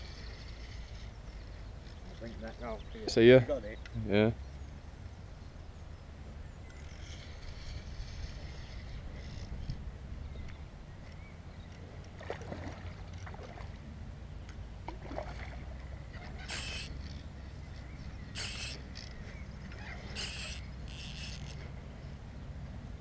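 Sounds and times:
wind rumbling on microphone: 5.4 - 11.7
short hissing rushes: 16.5 - 17.0, 18.4 - 18.9, 20.1 - 21.6.

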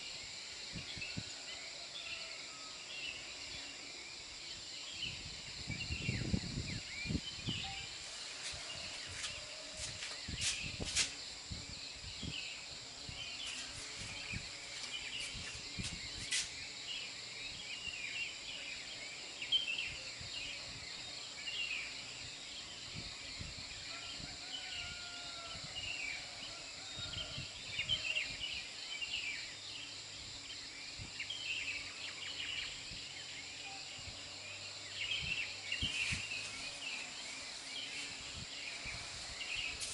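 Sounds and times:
high-pitched insect drone: 0.0 - 26.2
small birds chirping: 12.0 - 20.6, 34.5 - 39.9.

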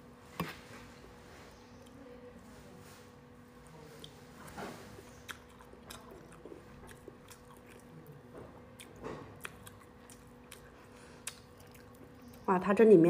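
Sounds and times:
close chewing: 3.6 - 12.5
wet mouth clicks: 8.8 - 12.4.

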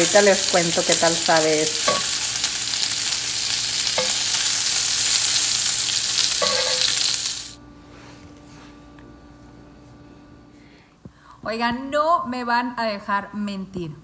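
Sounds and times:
bacon sizzling on griddle: 0.0 - 7.6.

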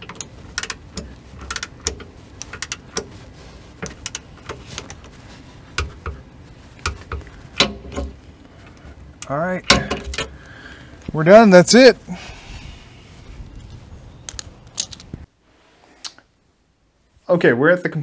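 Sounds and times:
torque wrench ratcheting clicks: 0.0 - 3.1.

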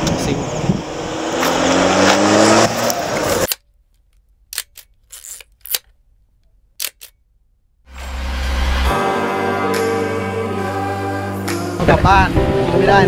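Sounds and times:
vehicle engine rising: 0.0 - 3.5, 7.9 - 11.6
camera shutter clicks: 4.5 - 5.9, 6.8 - 7.2.

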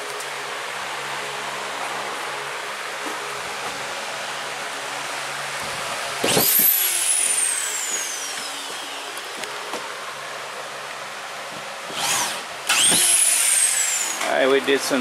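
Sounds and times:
fan hiss: 0.0 - 15.0
screw gun motor whine: 6.2 - 9.6, 11.9 - 14.3.

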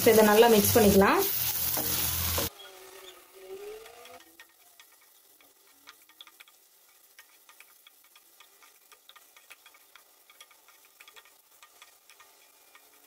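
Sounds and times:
light sizzle of frying: 0.0 - 13.0
spatula tapping and scraping pan: 3.8 - 13.0.

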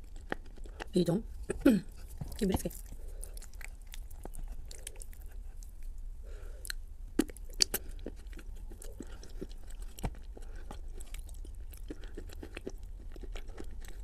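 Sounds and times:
chewing crackles: 0.0 - 14.0
clay crunching when bitten: 6.7 - 14.0.

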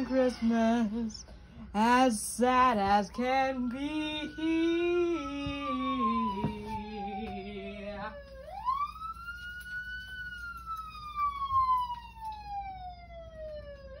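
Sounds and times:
wail siren: 3.1 - 14.0.

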